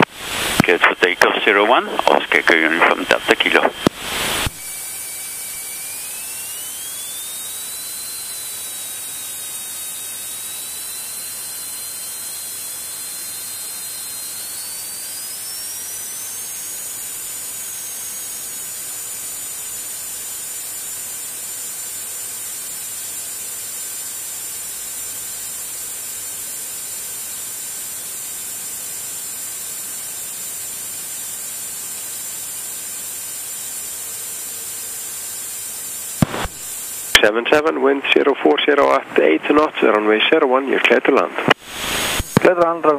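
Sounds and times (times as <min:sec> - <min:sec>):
thin engine whine: 0:00.0 - 0:18.7
aircraft engines rushing hiss: 0:00.1 - 0:04.8.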